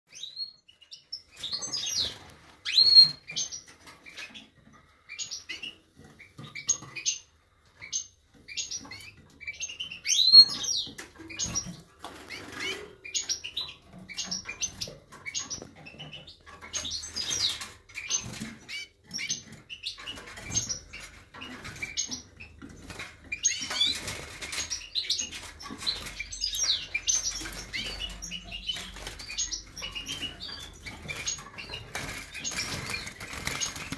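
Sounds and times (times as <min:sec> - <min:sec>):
wing flapping in cage: 0:30.1 - 0:33.9.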